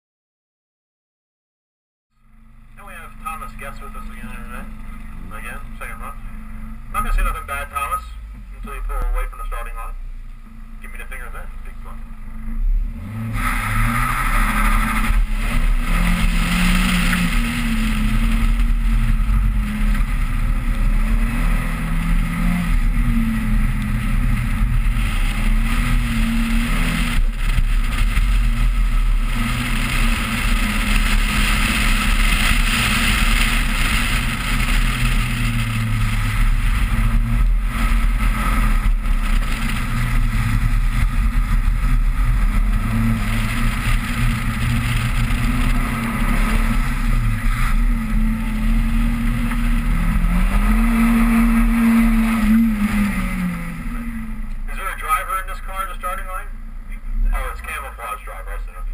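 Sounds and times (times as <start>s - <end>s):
car engine revving: 2.2s - 58.9s
wind and wet road hiss: 13.2s - 54.4s.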